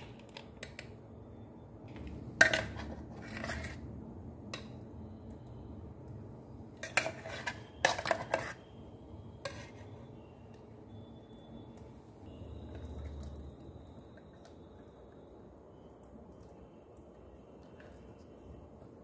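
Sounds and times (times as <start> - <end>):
spoon scraping steel jar: 2.4 - 3.8, 6.8 - 8.7, 9.4 - 10.0.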